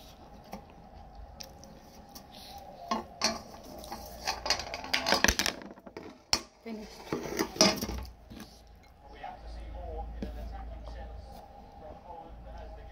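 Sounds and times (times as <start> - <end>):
chopsticks scraping metal plate: 2.9 - 5.4, 6.8 - 8.9.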